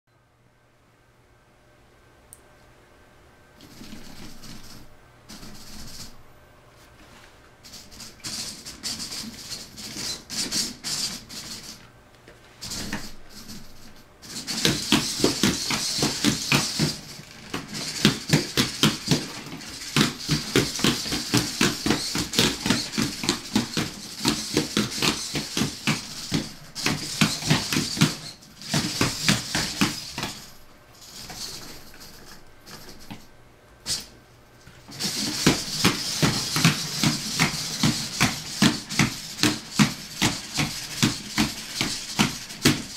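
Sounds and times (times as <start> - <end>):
robot feet clicking on wood floor: 12.6 - 33.3, 34.8 - 42.9.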